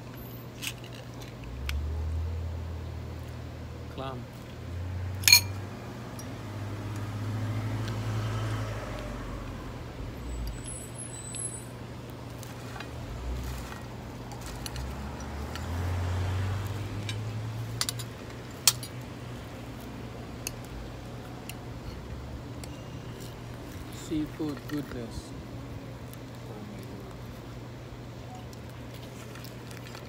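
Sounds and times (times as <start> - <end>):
cars passing: 1.5 - 28.2
cutlery clinking on a plate: 5.3 - 5.6.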